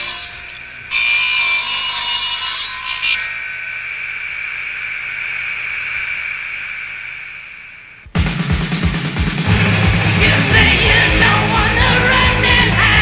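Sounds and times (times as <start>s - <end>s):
electric guitar feedback tone: 3.0s - 8.2s, 9.4s - 13.0s.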